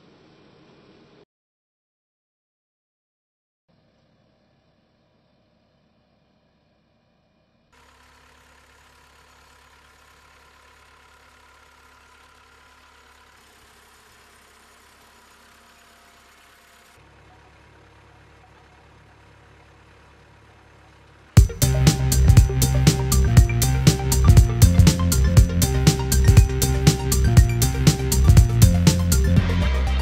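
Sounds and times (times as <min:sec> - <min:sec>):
tractor engine running: 0:07.8 - 0:30.0.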